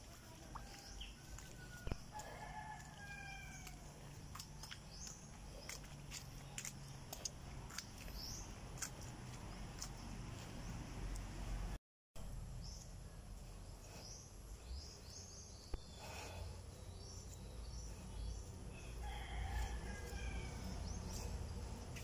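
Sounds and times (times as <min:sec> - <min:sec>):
distant roosters crowing: 0:00.0 - 0:05.7, 0:17.8 - 0:22.0
small birds chirping: 0:00.0 - 0:11.3, 0:12.4 - 0:22.0.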